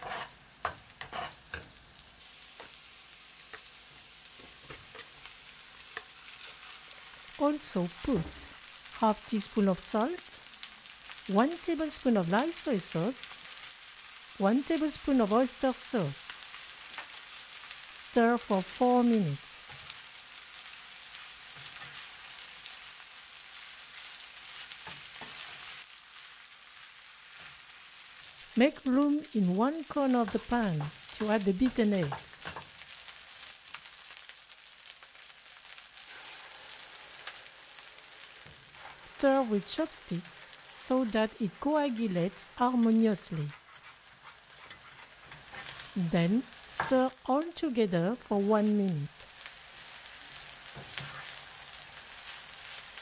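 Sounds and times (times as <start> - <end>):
spatula scraping pan: 0.0 - 1.7, 43.5 - 46.0, 50.8 - 51.4
butter and garlic sizzling: 0.0 - 53.0.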